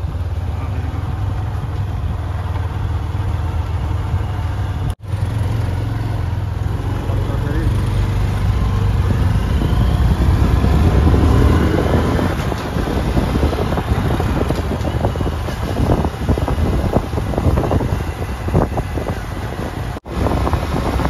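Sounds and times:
motorcycle engine rumble: 0.0 - 21.0
wind buffeting microphone: 8.0 - 21.0.

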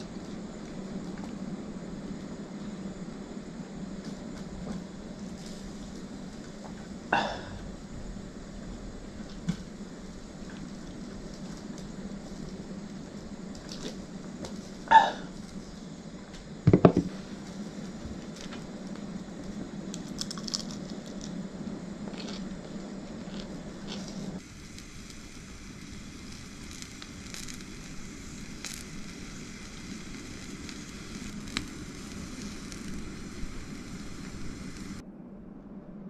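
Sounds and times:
fish sizzling on a grill: 0.0 - 35.0
crunchy chewing: 18.2 - 24.4.

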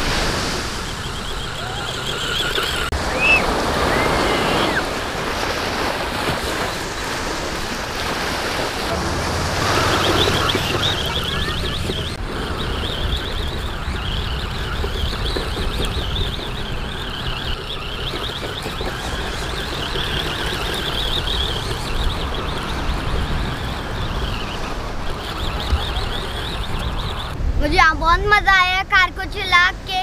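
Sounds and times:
wind rumbling on microphone: 0.0 - 30.0
toy car motor whining: 0.4 - 5.0, 9.5 - 27.4.

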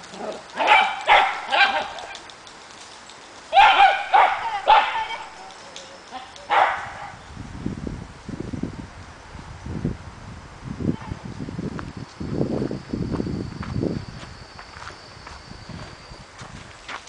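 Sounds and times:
dog barking: 0.6 - 2.1, 3.5 - 5.3, 6.5 - 7.2.

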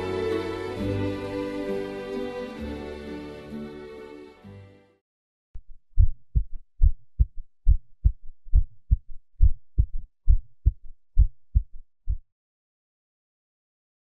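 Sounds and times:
heartbeat thumps: 5.6 - 12.3.

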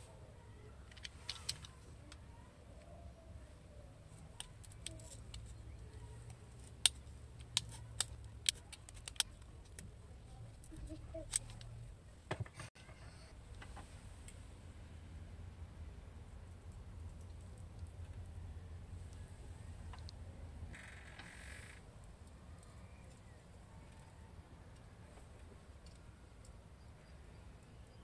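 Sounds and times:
low steady hum: 0.0 - 28.0
metal parts clicking: 6.6 - 9.8.

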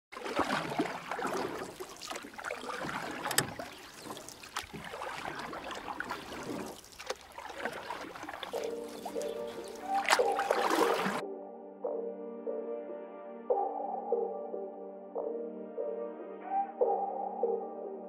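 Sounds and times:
water sloshing and splashing: 0.1 - 11.2
music: 8.5 - 18.0.

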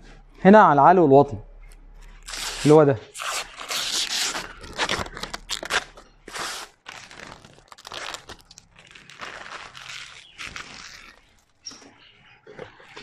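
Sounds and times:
cladding panel and film crinkling: 1.6 - 13.0.

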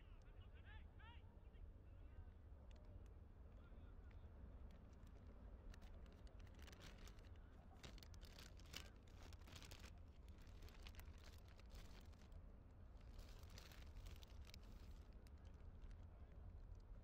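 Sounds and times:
faint ticks and rustles: 4.0 - 17.0.

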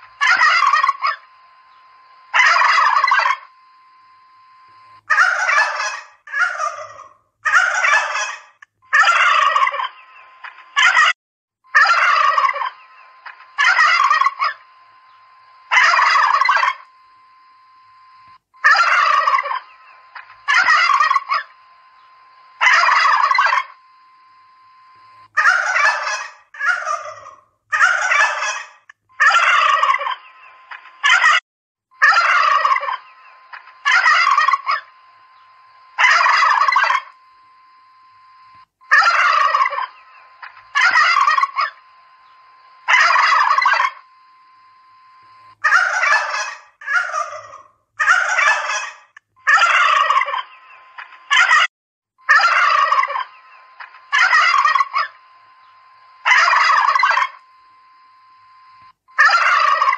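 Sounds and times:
turkeys gobbling: 0.0 - 1.3, 2.3 - 3.5, 5.1 - 11.1, 11.7 - 16.8, 18.6 - 23.8, 25.4 - 31.4, 32.0 - 37.2, 38.9 - 41.8, 42.8 - 44.1, 45.6 - 51.7, 52.3 - 55.2, 56.2 - 57.4, 59.2 - 59.9
faint steady tone: 0.0 - 7.0, 11.7 - 27.0, 32.0 - 46.8, 52.2 - 59.9.

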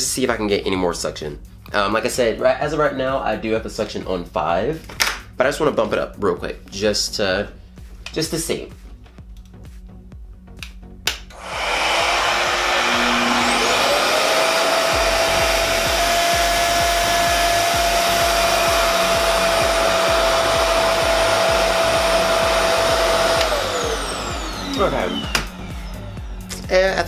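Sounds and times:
hair dryer rushing air: 11.3 - 27.0
motor whine rising in pitch: 11.3 - 27.0
hair dryer switch click: 23.3 - 23.7, 24.6 - 25.6.

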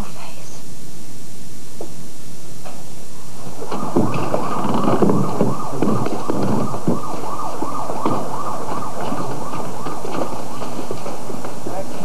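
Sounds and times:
thuds: 2.6 - 12.0
emergency siren yelping: 3.2 - 12.0.

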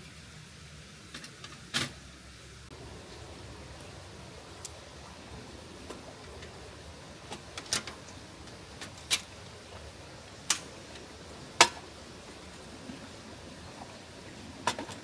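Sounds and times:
faint steady hiss: 0.0 - 15.0.

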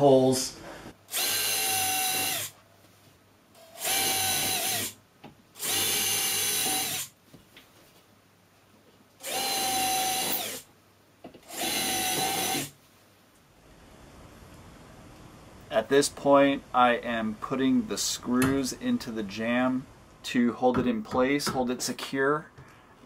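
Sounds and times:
cordless drill boring into wood: 1.1 - 2.5, 3.6 - 5.0, 5.6 - 7.1, 9.2 - 10.7, 11.4 - 12.7.

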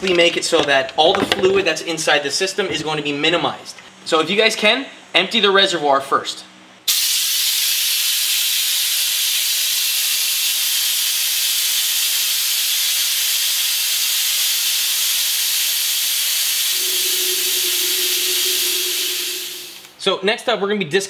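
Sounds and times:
vacuum bleeder hissing: 13.0 - 20.0
low steady tone: 16.7 - 19.9.

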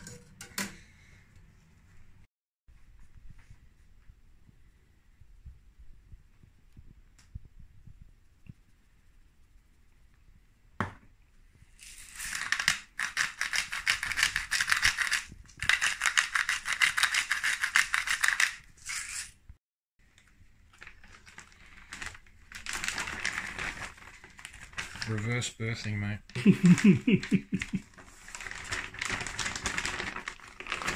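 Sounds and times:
pepper mill grinding: 11.8 - 19.3
plastic bag rustling: 20.6 - 25.4, 26.4 - 30.9.

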